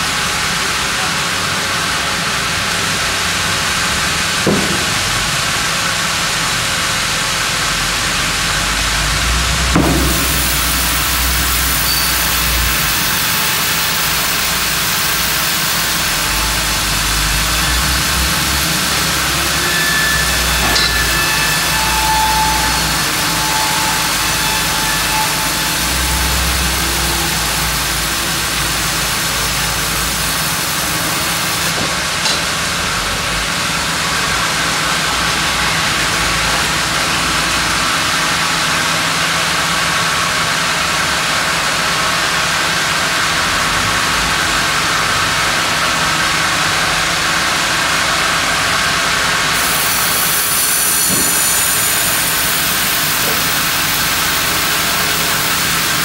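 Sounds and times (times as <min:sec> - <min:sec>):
band saw cutting log: 0:03.4 - 0:06.9, 0:07.7 - 0:39.7, 0:48.5 - 0:56.0.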